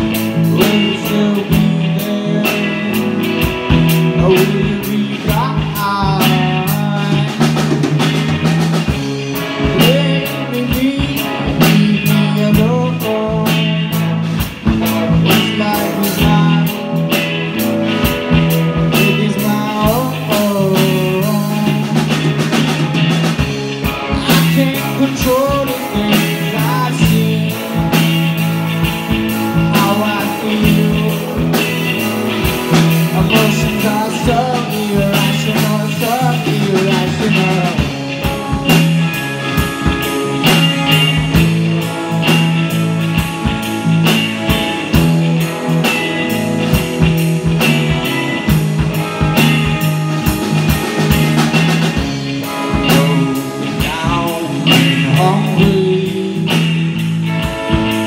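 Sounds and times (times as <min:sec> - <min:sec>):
man singing: 0:00.0 - 0:07.9, 0:09.4 - 0:17.6, 0:18.8 - 0:22.6, 0:23.5 - 0:42.0, 0:51.9 - 0:57.1
live rock band: 0:00.0 - 0:58.0.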